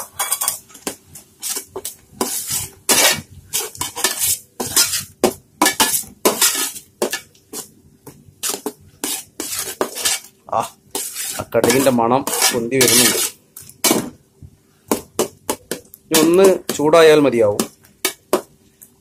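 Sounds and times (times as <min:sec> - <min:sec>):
spoon scraping steel pan: 0:00.0 - 0:00.6, 0:01.4 - 0:07.3, 0:08.4 - 0:10.3, 0:10.9 - 0:13.4.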